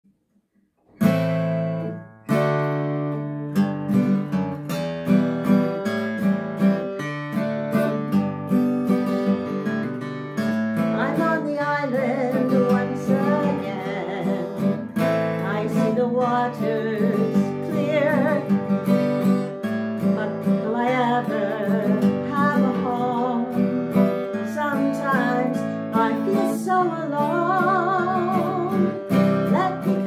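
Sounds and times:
acoustic guitar strumming: 0:00.8 - 0:30.0
woman singing: 0:10.8 - 0:30.0.

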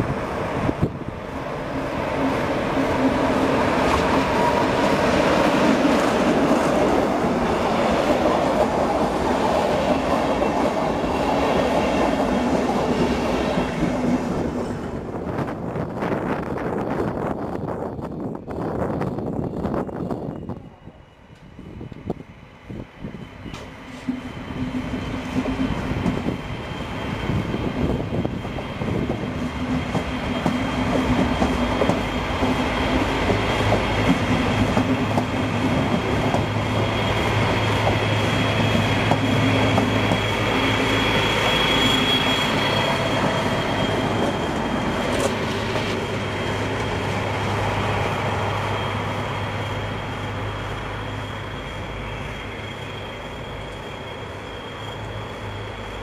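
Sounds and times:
diesel locomotive engine drone: 0:00.0 - 0:56.0
high wheel squeal: 0:19.3 - 0:29.4, 0:30.1 - 0:56.0.

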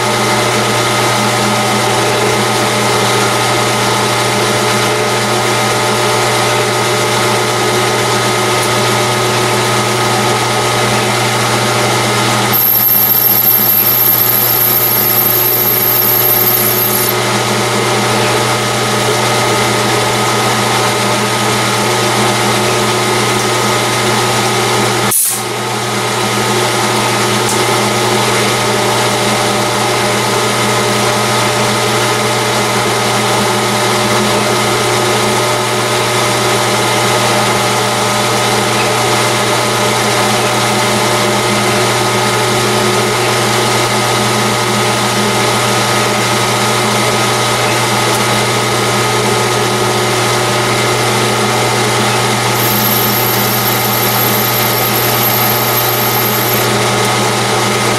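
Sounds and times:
metal lathe whirring: 0:12.4 - 0:17.3, 0:52.6 - 0:56.8.

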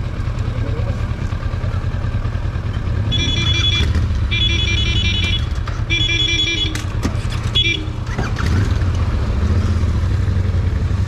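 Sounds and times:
motorcycle engine rumbling: 0:00.0 - 0:11.0
electronic ringtone melody: 0:03.2 - 0:05.4.

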